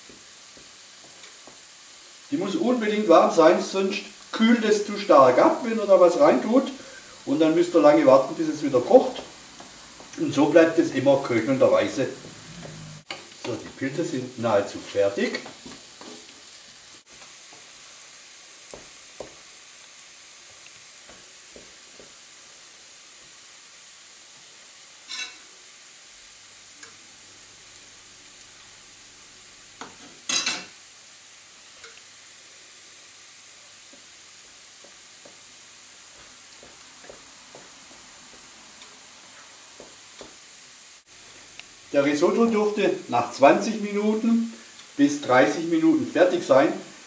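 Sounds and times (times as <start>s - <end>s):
mushrooms sizzling in a pan: 0.0s - 47.0s
stock hissing in hot pan: 0.0s - 47.0s
wooden spoon scraping a pan: 6.5s - 17.8s.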